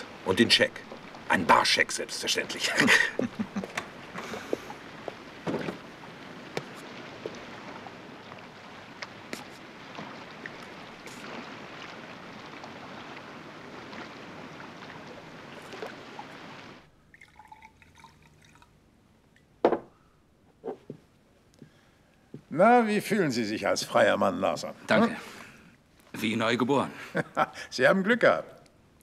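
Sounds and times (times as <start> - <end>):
water lapping at rocky shore: 0.0 - 18.7
drips and small splashes: 0.0 - 19.6.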